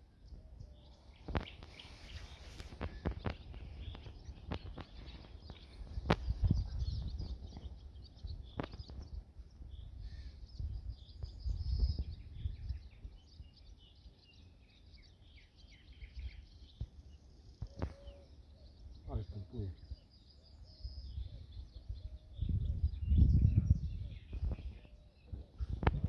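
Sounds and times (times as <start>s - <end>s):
small birds chirping: 0.0s - 26.0s
low microphone rumble: 21.0s - 26.0s.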